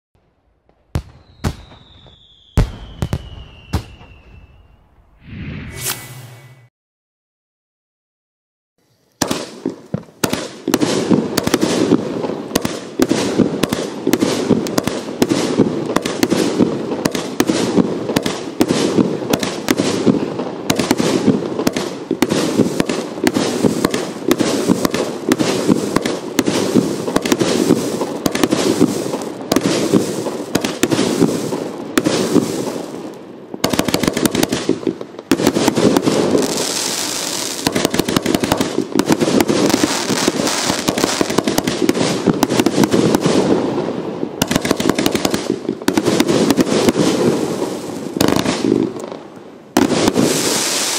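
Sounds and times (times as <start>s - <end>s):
firework cake shots and bursts: 9.2s - 43.7s, 44.4s - 49.0s, 49.8s - 50.9s.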